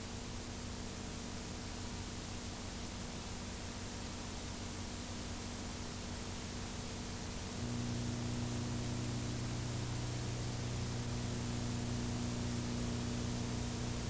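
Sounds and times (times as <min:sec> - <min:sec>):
videotape hiss: 0:00.0 - 0:14.0
low even hum: 0:07.2 - 0:14.0.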